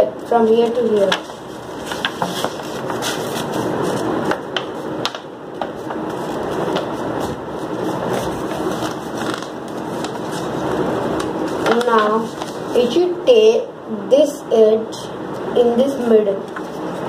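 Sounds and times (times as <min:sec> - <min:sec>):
paper rustling and crackling: 0:00.4 - 0:13.0, 0:16.4 - 0:17.0.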